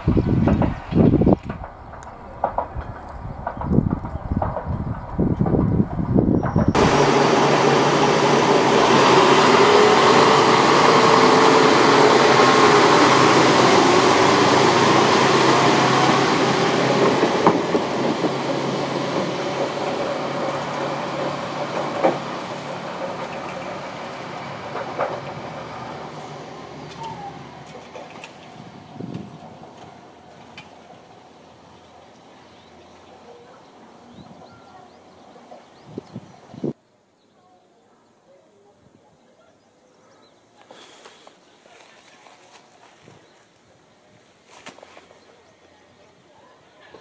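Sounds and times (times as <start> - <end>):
wheels clacking over rail joints: 0.0 - 36.5
diesel railcar engine under load: 0.0 - 36.8.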